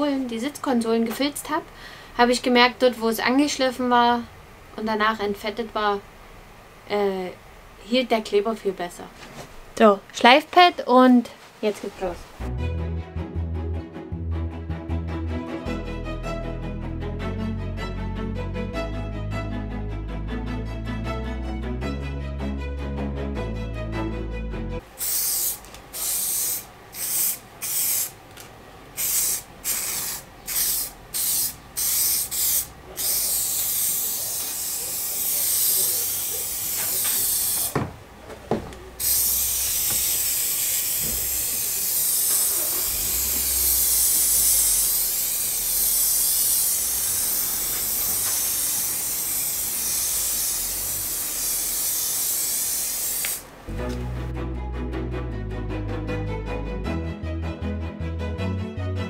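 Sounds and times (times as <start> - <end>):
aerosol can spraying: 25.0 - 28.2, 29.0 - 37.9, 39.0 - 53.4
light knocks: 37.6 - 38.9.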